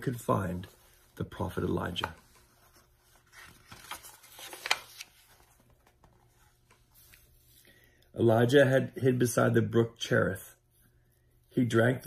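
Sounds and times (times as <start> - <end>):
book page turning: 0.6 - 7.5.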